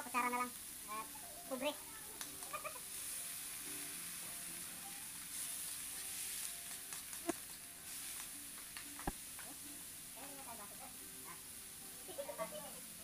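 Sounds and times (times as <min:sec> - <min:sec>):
meat sizzling in a pan: 0:00.0 - 0:13.0.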